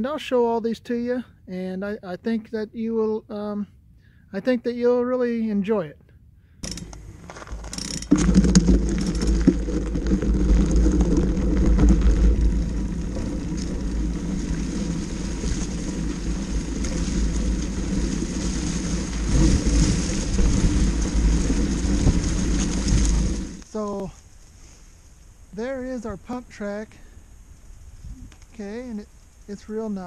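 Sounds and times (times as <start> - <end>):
bike rattling: 6.6 - 24.5
bike tyres rumbling on gravel: 6.6 - 30.0.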